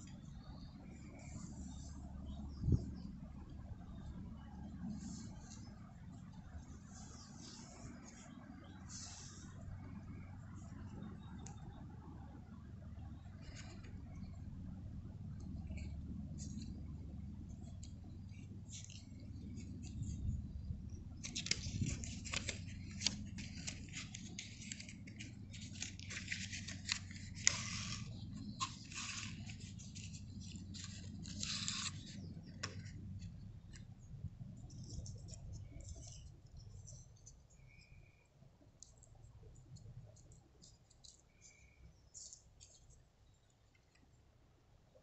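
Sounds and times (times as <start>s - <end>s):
steady low rumble: 0.0s - 45.0s
paper and cardboard crinkling: 21.2s - 33.9s.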